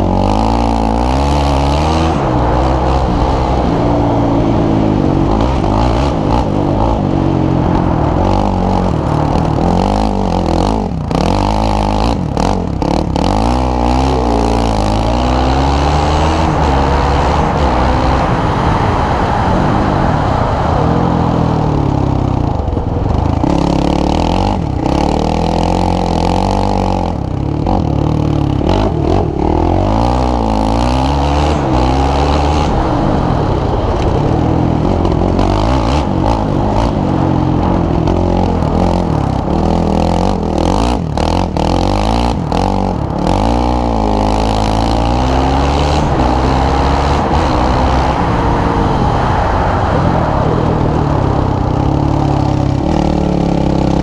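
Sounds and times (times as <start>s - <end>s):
quad bike engine revving: 0.0s - 54.0s
wind buffeting microphone: 15.2s - 23.7s, 31.3s - 41.7s, 44.9s - 54.0s.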